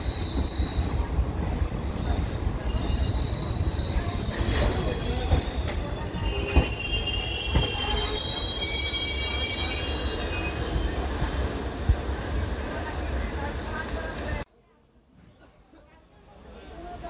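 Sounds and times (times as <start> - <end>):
train wheels squealing: 0.0 - 1.1, 1.9 - 11.3, 13.5 - 14.2
low train rumble: 0.0 - 14.5.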